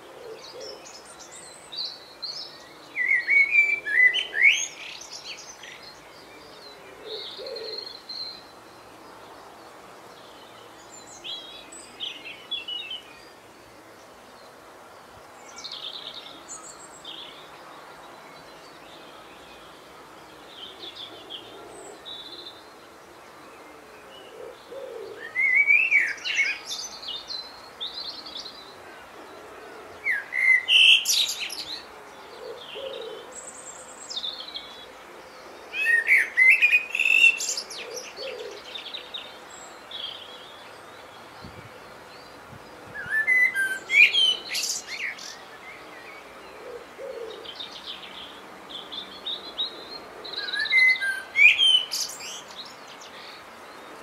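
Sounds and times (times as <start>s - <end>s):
songbird singing: 0.0s - 54.0s.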